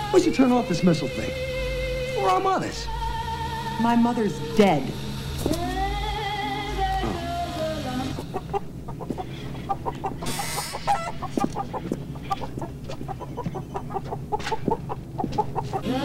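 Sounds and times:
chickens clucking: 5.0s - 16.0s.

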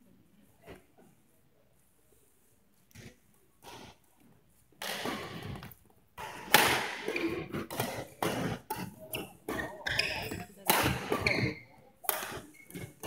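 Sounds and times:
rackets hitting shuttlecock: 4.8s - 12.9s.

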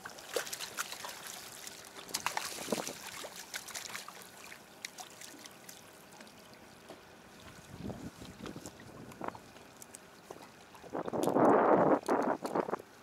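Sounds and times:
fish splashing in water: 0.0s - 6.5s.

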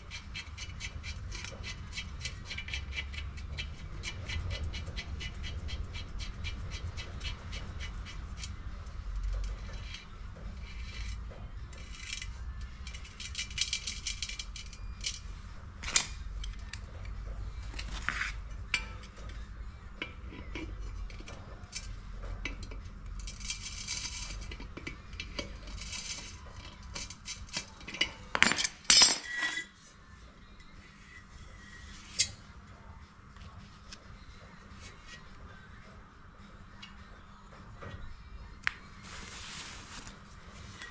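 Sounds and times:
metal clinking and scraping: 0.0s - 29.9s, 31.0s - 32.4s, 39.0s - 40.9s.

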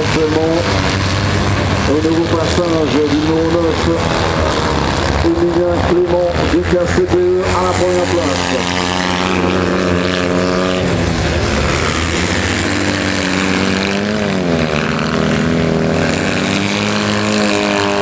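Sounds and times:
vehicle engines running: 0.0s - 18.0s.

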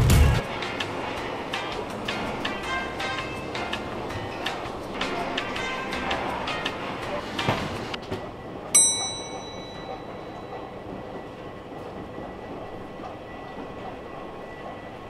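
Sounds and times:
bright metallic ding: 8.8s - 10.6s.

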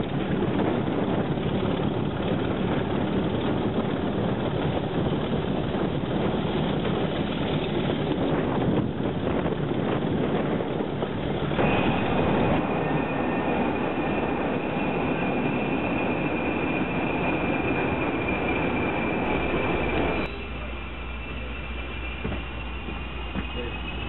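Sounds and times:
diesel locomotive rumbling: 0.0s - 24.0s
rushing ride noise: 0.0s - 24.0s
high-pitched squeal: 11.5s - 24.0s.

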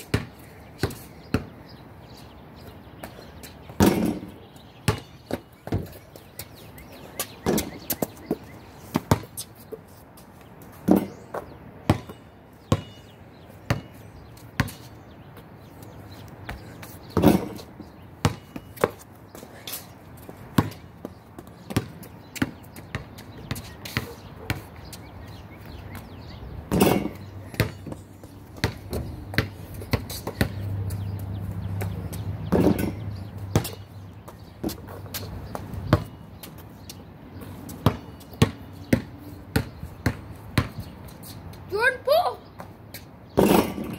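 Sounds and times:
basketball bouncing on hard ground: 0.0s - 41.7s, 42.5s - 43.9s
ball hitting backboard and rim: 0.1s - 1.5s, 3.8s - 6.0s, 7.4s - 8.0s, 9.0s - 9.4s, 10.8s - 13.0s, 17.1s - 19.0s, 20.6s - 20.8s, 21.7s - 24.7s, 26.7s - 28.0s, 32.5s - 33.8s, 43.4s - 43.9s.

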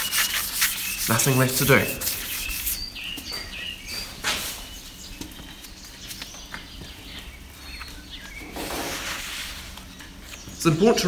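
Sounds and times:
bird chirps: 0.0s - 9.1s.

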